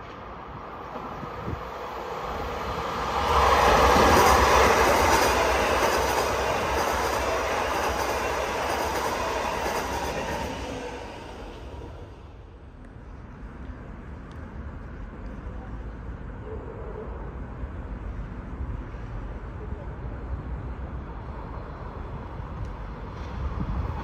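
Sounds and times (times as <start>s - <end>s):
train wheels rumbling and rattling: 0.0s - 12.5s.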